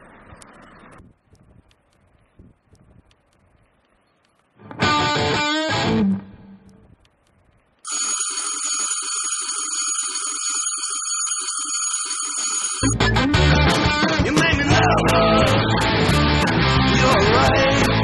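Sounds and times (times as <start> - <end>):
doorbell ringing: 7.9 - 13.0.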